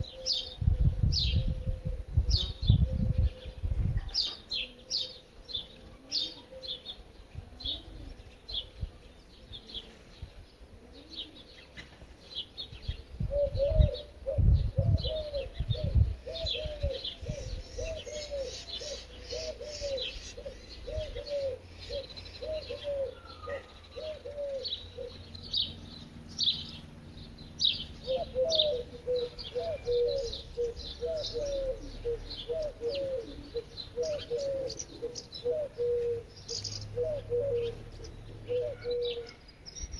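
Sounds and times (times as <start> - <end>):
small birds chirping: 0.0 - 39.9
low cooing: 13.2 - 25.3, 28.0 - 39.4.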